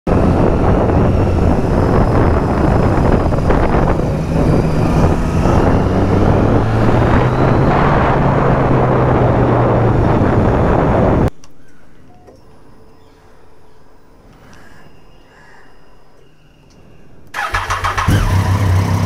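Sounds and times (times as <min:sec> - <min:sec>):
wind rush: 0:00.1 - 0:11.3
road noise: 0:00.1 - 0:19.0
motorcycle engine running: 0:17.5 - 0:19.0.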